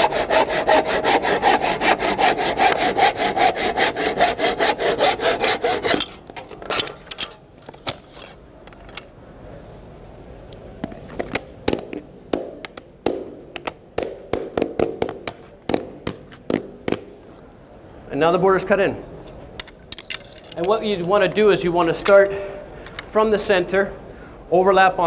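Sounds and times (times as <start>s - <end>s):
hand saw cutting wood: 0.0s - 6.9s.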